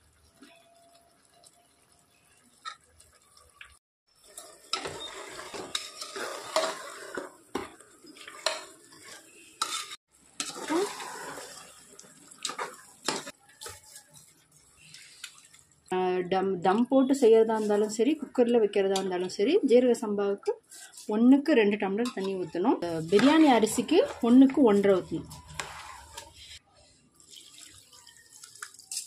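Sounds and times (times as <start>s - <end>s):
food frying: 0.0s - 16.2s, 21.8s - 29.0s
metal ladle scraping pot: 4.3s - 15.4s, 22.0s - 26.6s.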